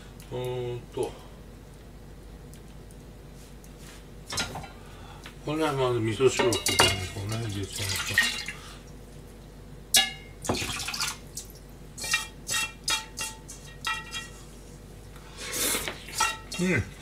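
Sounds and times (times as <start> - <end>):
metal pans clinking: 6.3 - 8.5, 10.0 - 10.9, 12.0 - 14.4, 16.1 - 17.0
liquid pouring into saucepan: 6.7 - 8.6, 10.4 - 11.2.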